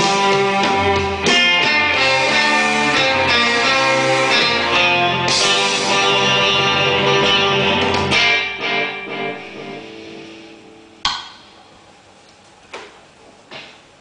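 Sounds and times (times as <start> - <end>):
electric guitar chord ringing: 0.0 - 11.1.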